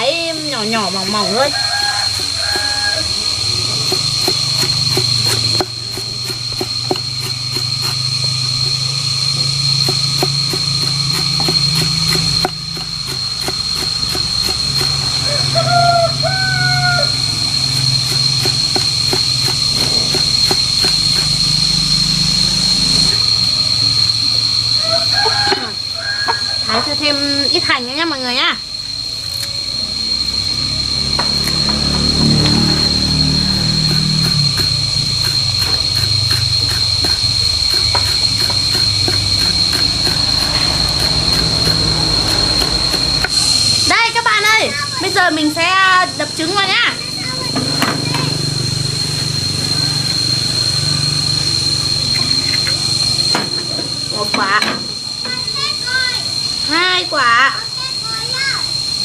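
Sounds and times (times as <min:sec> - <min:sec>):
insect drone: 0:00.0 - 0:59.0
steady high whine: 0:00.0 - 0:59.0
chicken calling: 0:00.1 - 0:04.3, 0:15.0 - 0:17.7, 0:24.7 - 0:27.3
knife chopping vegetables: 0:03.8 - 0:08.1, 0:09.8 - 0:15.1, 0:17.7 - 0:21.3, 0:33.8 - 0:43.3.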